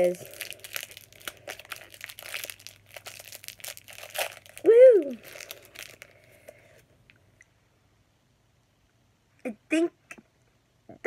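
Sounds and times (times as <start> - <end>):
plastic wrapper crinkling: 0.0 - 6.6.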